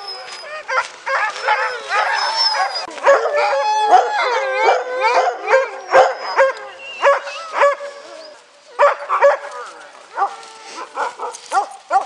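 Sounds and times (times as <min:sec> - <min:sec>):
sled dogs howling and barking: 0:00.0 - 0:12.0.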